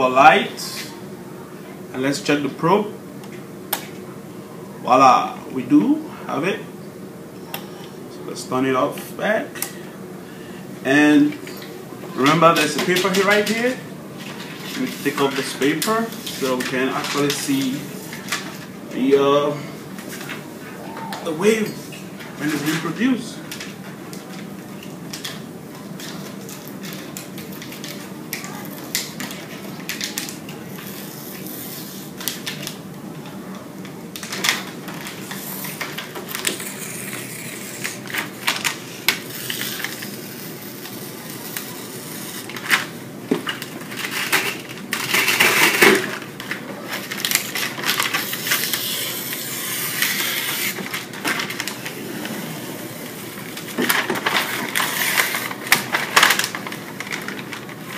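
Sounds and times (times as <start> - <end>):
paper backing crackling and rustling: 12.2 - 18.7, 22.2 - 32.8, 34.1 - 57.9.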